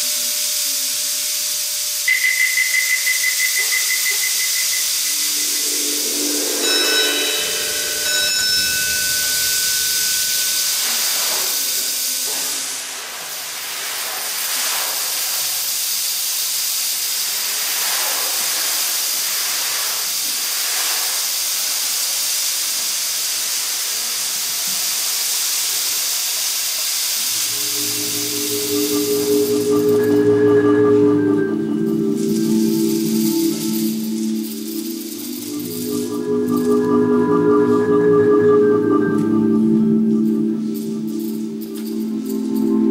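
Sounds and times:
percussion hissing wash: 0.0 - 42.9
faint held high tone: 2.0 - 11.0, 27.3 - 42.9
mallet percussion notes: 2.1 - 11.0, 27.4 - 42.9.

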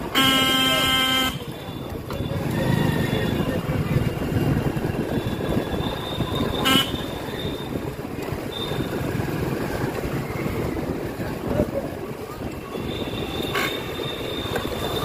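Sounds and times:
street traffic noise: 0.0 - 15.0
short horn beep: 0.1 - 2.2.

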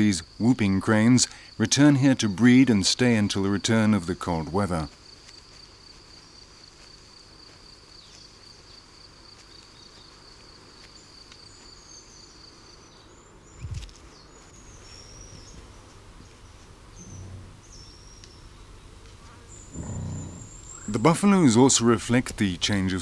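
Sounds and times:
small birds chirping: 4.8 - 23.0
insect trilling: 14.6 - 23.0
low thump: 19.8 - 20.6.

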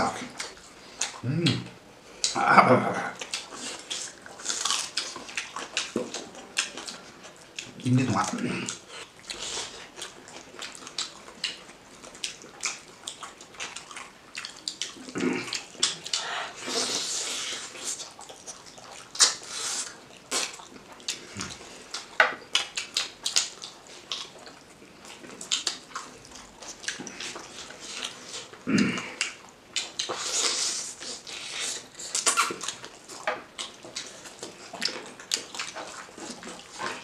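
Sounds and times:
people chewing and lip smacking: 0.0 - 37.0.

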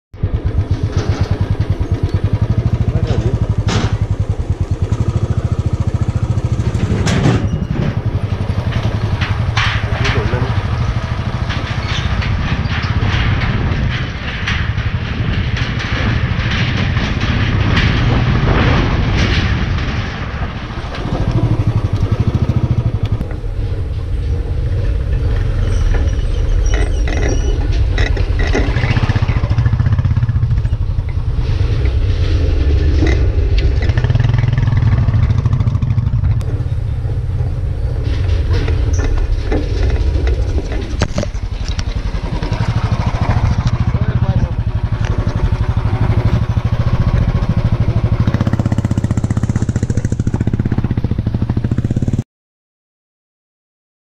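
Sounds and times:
tyres rattling over steel deck: 0.2 - 52.1
motorcycle engine running: 0.2 - 52.2.

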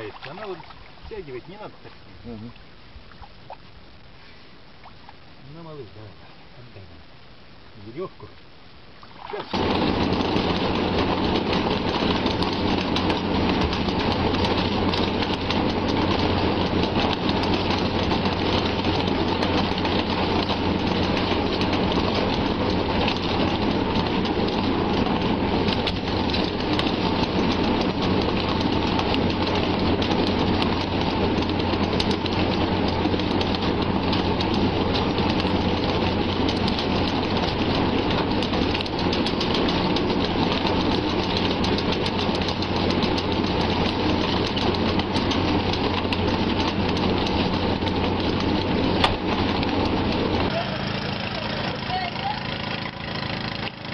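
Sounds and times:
outboard motor hum: 0.0 - 7.6, 8.4 - 53.9
fish thrashing and splashing: 9.0 - 9.6.

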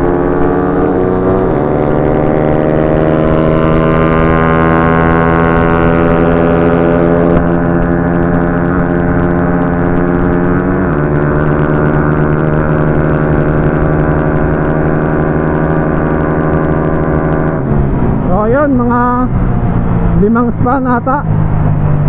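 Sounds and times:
motorcycle engine at high revs: 0.0 - 22.0
wind rumble on microphone: 0.0 - 22.0.

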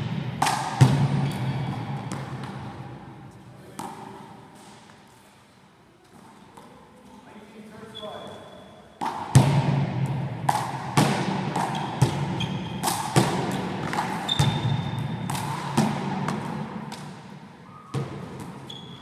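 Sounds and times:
sneaker squeaks on floor: 1.2 - 2.2, 7.8 - 9.1, 11.6 - 13.1, 14.2 - 15.2, 17.7 - 19.0.

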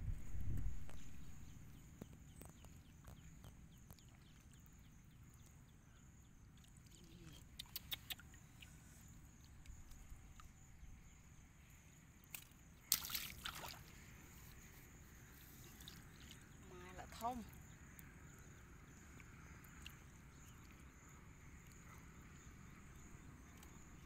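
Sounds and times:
low rumble: 0.0 - 1.7.

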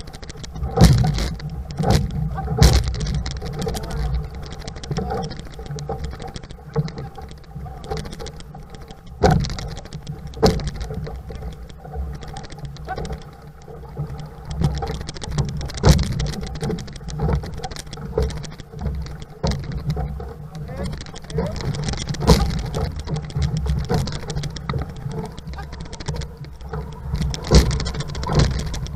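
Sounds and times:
paddles splashing in water: 0.0 - 28.9
wind and water rushing: 0.0 - 28.9
knocks on hull: 0.6 - 5.4, 9.2 - 11.1, 14.6 - 20.1, 20.8 - 26.2, 26.8 - 28.9.

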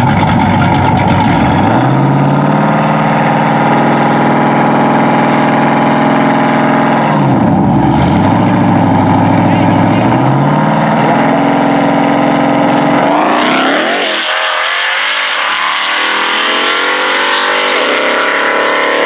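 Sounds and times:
car engine idling: 0.0 - 13.7
car engine revving: 0.0 - 19.0.

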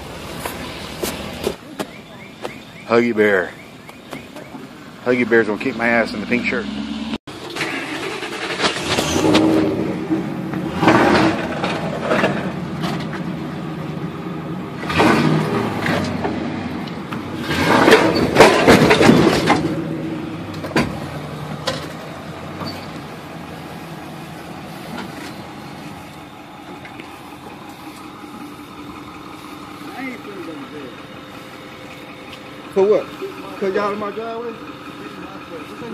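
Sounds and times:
truck engine running: 0.0 - 35.9
rattling and knocking bursts: 7.4 - 13.3, 17.3 - 23.1.

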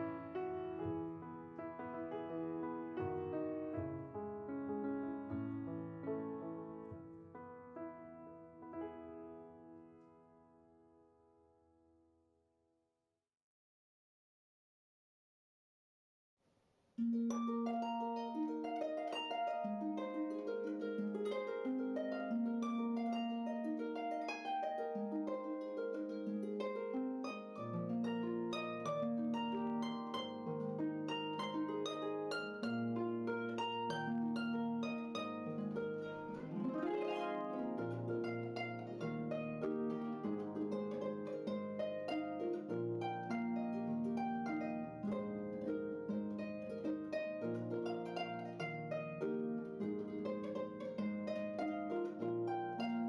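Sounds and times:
plucked-string notes: 17.0 - 53.0.

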